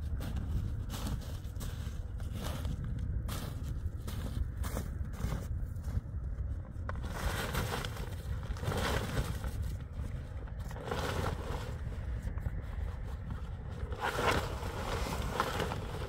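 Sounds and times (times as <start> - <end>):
wind rumble on microphone: 0.0 - 16.0
snow crunching: 0.1 - 6.0, 7.0 - 16.0
tent cloth rustling and scraping: 6.9 - 16.0.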